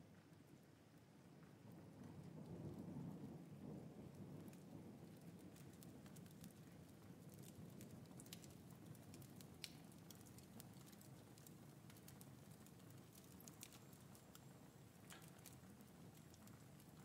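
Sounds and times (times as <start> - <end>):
soft ticks and clicks: 7.4 - 17.0.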